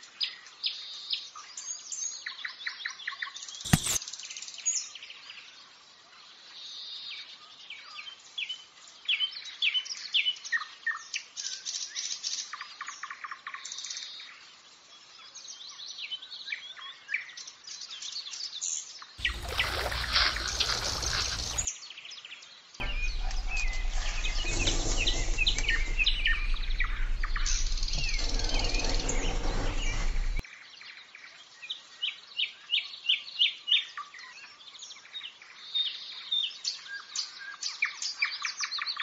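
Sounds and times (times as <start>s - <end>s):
sharp click: 3.7s - 4.0s
small birds chirping: 19.2s - 21.7s
rushing noise with low hum: 22.8s - 30.4s.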